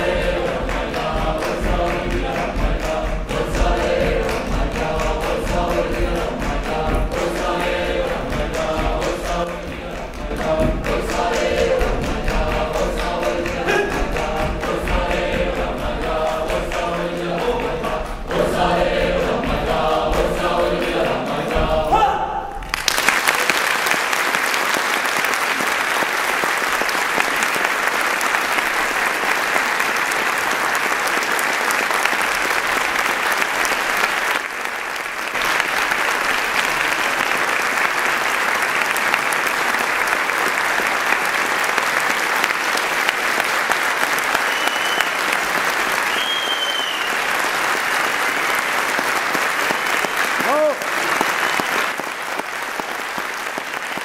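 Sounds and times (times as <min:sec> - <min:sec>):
choir singing folk song: 0:00.0 - 0:22.6
choir clapping in time: 0:00.0 - 0:54.0
audience applause: 0:22.6 - 0:54.0.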